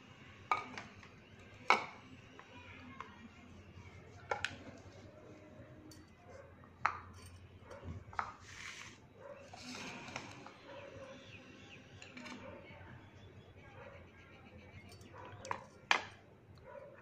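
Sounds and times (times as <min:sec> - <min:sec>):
leaves rustling into bowl: 0:08.4 - 0:10.4.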